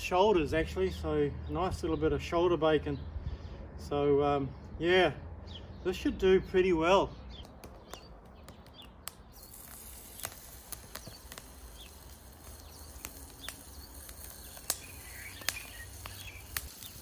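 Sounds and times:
birds chirping: 0.0 - 17.0
bacon sizzling in a frying pan: 9.4 - 17.0.

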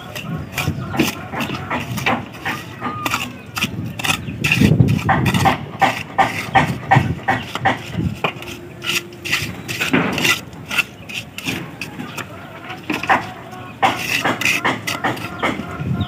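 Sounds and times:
trowel scraping wet cement: 0.0 - 16.0.

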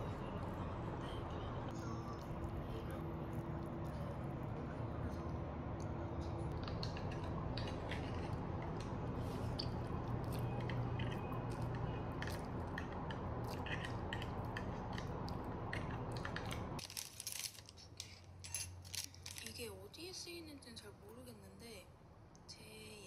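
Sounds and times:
steady low hum: 0.0 - 16.8
person chewing: 6.4 - 16.8
chopsticks clicking and tapping: 6.5 - 16.7.

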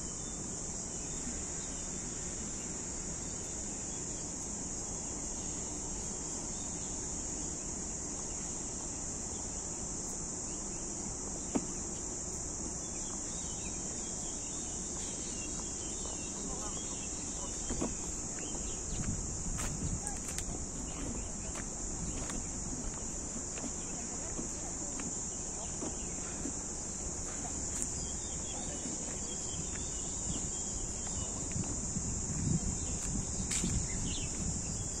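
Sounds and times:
high-pitched insect drone: 0.0 - 35.0
footsteps on stone path: 17.5 - 35.0.

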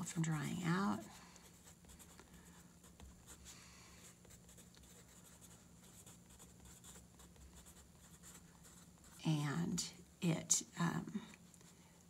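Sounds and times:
pencil scratching on paper: 0.5 - 9.3.

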